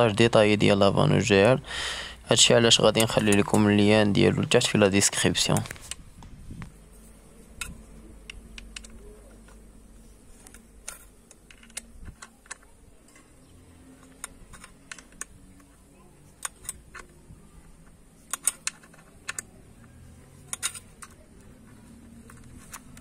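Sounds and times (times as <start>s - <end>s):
allen key clicking on metal bolt: 17.8s - 19.6s, 20.4s - 21.2s.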